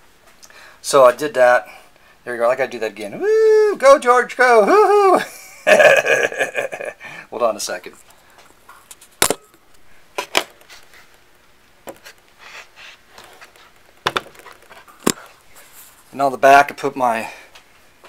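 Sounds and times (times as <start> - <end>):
quiet shuffling: 12.9 - 16.3.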